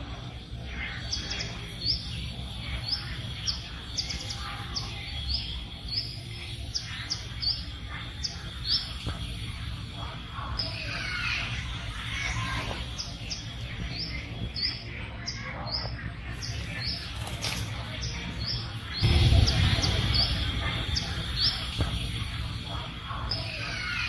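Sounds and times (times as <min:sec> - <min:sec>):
bird chirping: 0:00.0 - 0:24.0
outdoor background noise: 0:00.0 - 0:24.0
low rumble: 0:19.0 - 0:23.2.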